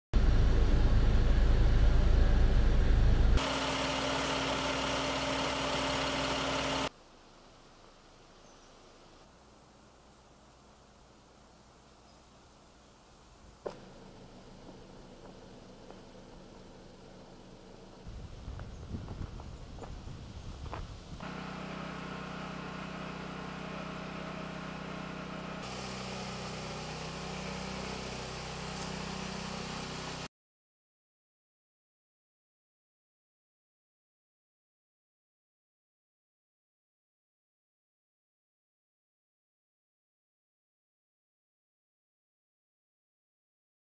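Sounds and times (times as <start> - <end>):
loud low rumble: 0.2 - 3.4
fire engine humming: 0.2 - 6.9, 21.2 - 30.3
faint outdoor ambience: 6.9 - 22.1
hiss: 25.6 - 30.3.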